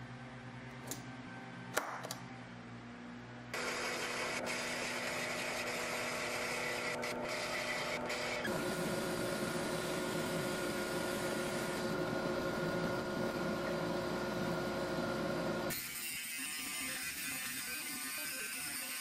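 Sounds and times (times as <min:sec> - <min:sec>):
bandsaw cutting wood: 0:03.6 - 0:08.6
drill press motor running: 0:03.6 - 0:15.7.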